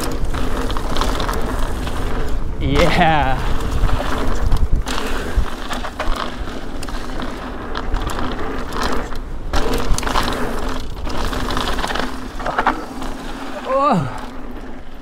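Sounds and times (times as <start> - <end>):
bike chain rattling and clicking: 0.0 - 15.0
bike tyres on loose dirt: 0.0 - 15.0.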